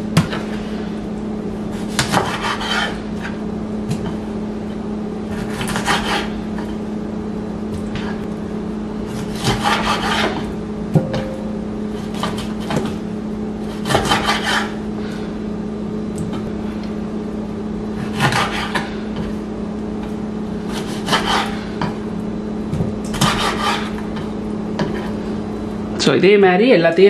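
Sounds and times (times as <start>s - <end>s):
steady low hum: 0.0s - 27.0s
knife cutting on wooden board: 1.8s - 3.4s, 5.3s - 6.3s, 9.1s - 10.5s, 13.7s - 14.8s, 18.0s - 18.9s, 20.7s - 22.0s, 23.1s - 24.0s.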